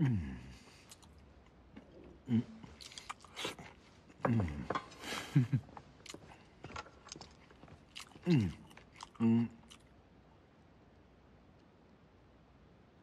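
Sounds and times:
man murmuring: 0.0 - 0.8, 2.2 - 2.8, 4.2 - 5.6, 8.2 - 9.7.

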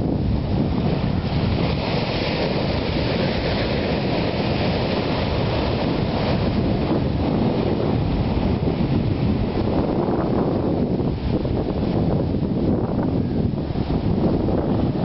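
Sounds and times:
surf washing up a beach: 0.0 - 15.0
wind buffeting microphone: 0.0 - 15.0.

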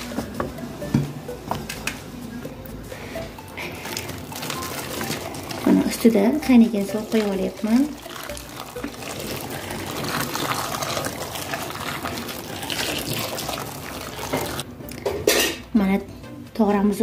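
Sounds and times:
water pouring into metal bowl: 6.7 - 14.6.

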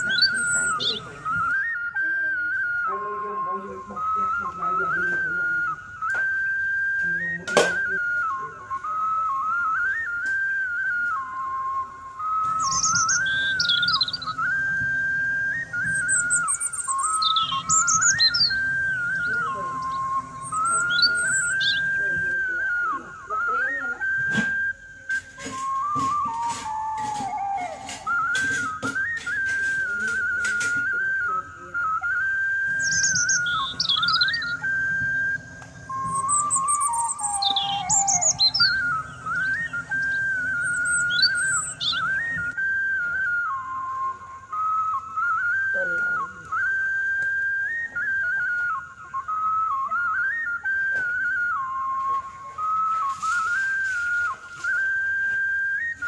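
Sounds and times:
high bird-like chirps: 0.0 - 2.0, 12.2 - 23.0, 31.8 - 42.6
whistled melody: 0.0 - 56.0.

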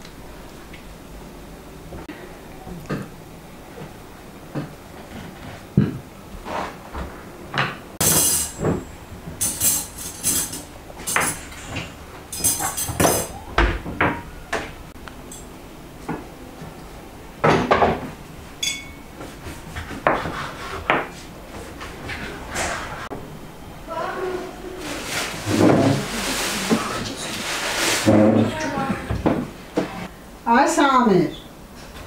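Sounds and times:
cutlery jingling: 9.4 - 11.6, 12.3 - 13.3, 18.6 - 19.0
plates clinking on table: 18.6 - 19.1.

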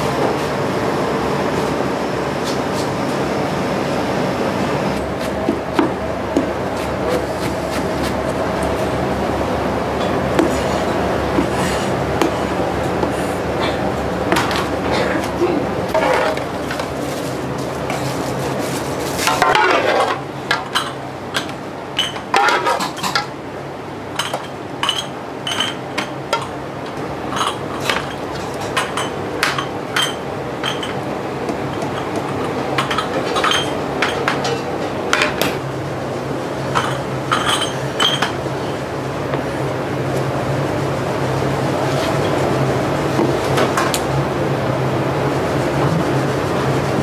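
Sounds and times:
steady low hum: 0.0 - 47.0
dishes and utensils clinking: 15.9 - 16.8, 19.2 - 23.3, 24.2 - 26.6, 27.3 - 31.0, 31.7 - 35.6, 36.7 - 38.4.

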